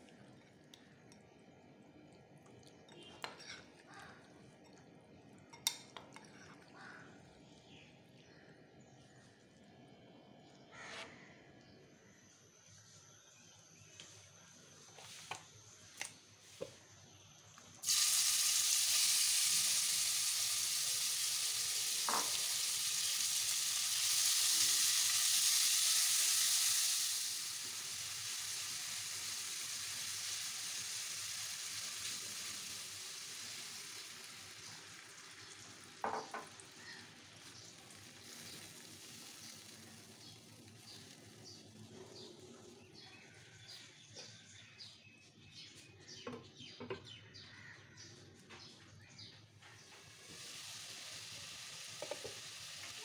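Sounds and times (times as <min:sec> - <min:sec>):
chicken sizzling in oil: 0:17.8 - 0:42.0, 0:49.8 - 0:53.0.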